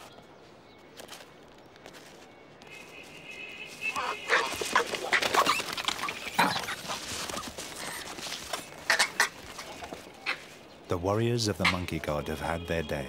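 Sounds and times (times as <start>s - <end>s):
monkeys screaming and shrieking: 3.9s - 10.7s.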